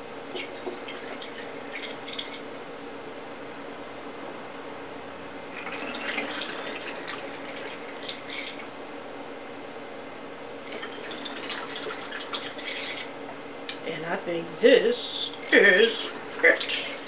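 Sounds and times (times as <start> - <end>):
steady low hum: 0.0 - 17.0
water splashing: 5.5 - 8.7, 10.6 - 13.1.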